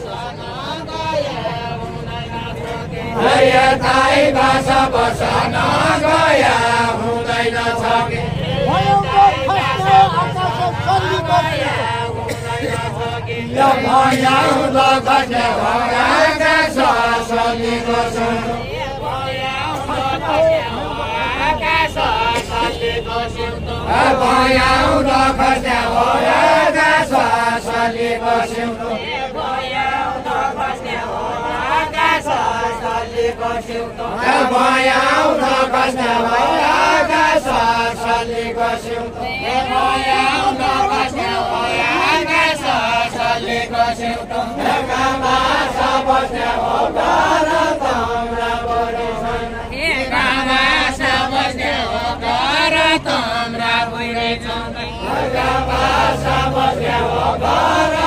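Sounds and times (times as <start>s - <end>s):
voices singing a folk song: 0.0s - 58.0s.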